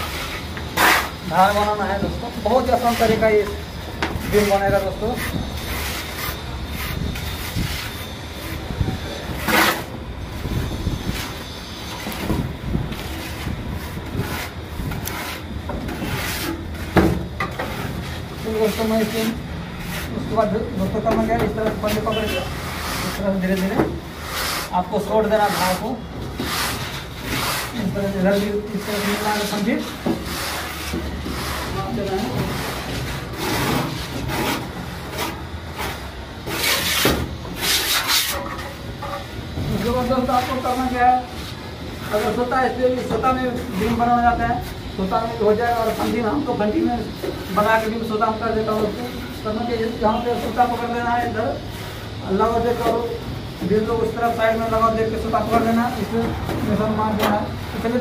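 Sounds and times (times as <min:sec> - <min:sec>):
trowel slapping mortar: 0:00.0 - 0:01.2, 0:13.0 - 0:17.9
tool scraping wet plaster: 0:00.0 - 0:38.7, 0:42.0 - 0:58.0.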